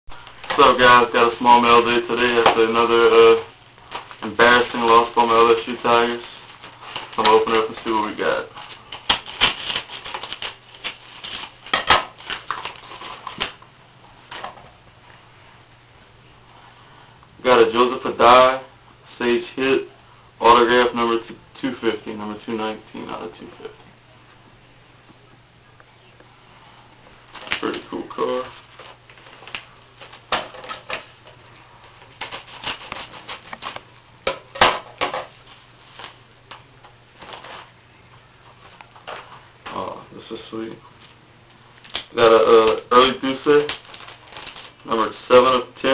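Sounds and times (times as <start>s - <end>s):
paper and plastic rustling: 0.1s - 13.6s, 27.2s - 33.9s, 34.6s - 36.6s, 37.2s - 37.7s, 38.4s - 40.0s, 41.8s - 45.6s.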